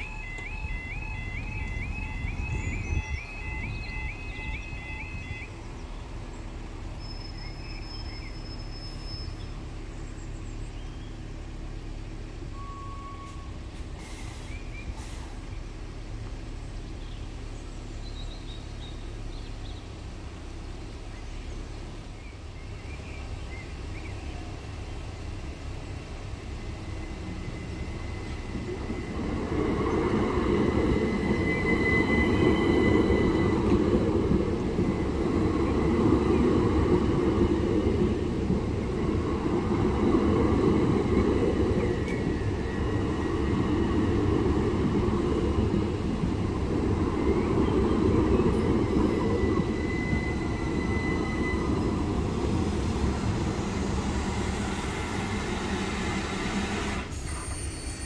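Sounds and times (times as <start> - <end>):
electric trains passing: 0.0 - 58.0
thin high tone: 26.6 - 38.2.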